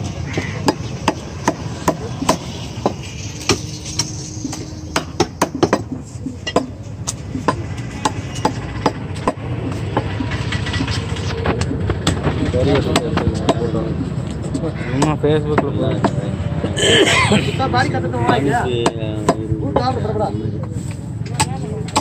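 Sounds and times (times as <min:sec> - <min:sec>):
cleaver chopping meat on wood: 0:00.3 - 0:03.7, 0:04.9 - 0:10.2.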